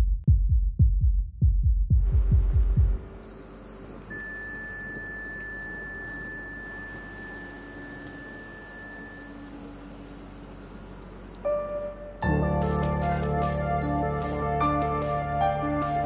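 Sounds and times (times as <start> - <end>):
lower steady tone: 3.2 - 13.2
high pure tone: 3.2 - 16.0.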